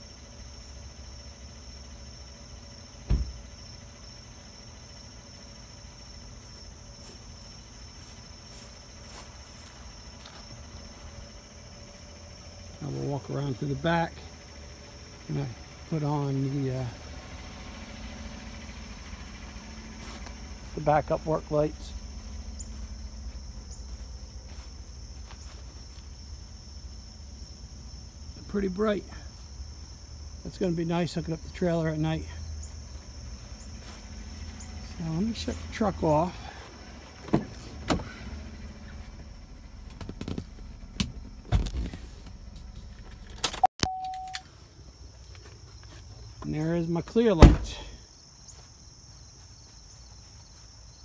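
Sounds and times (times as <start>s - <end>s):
pickup truck idling: 0.0s - 43.5s
crickets chirping: 0.0s - 51.0s
truck door slamming: 3.0s - 3.4s, 37.2s - 38.2s, 47.4s - 48.0s.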